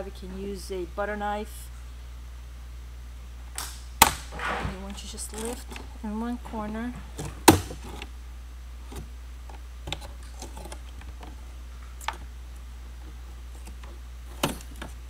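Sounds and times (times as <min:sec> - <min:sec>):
steady low hum: 0:00.0 - 0:15.0
sharp plastic snap: 0:03.5 - 0:04.8.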